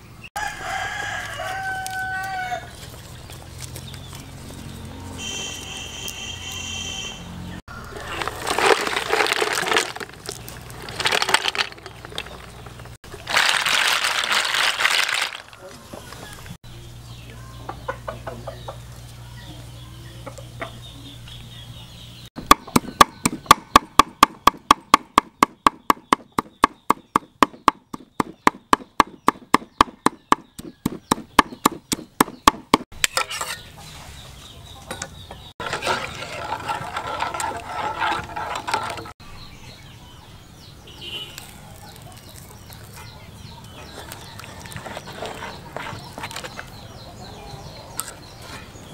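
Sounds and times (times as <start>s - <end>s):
chickens clucking: 15.5s - 21.9s, 41.7s - 48.8s
cleaver chopping on wooden block: 22.4s - 32.9s.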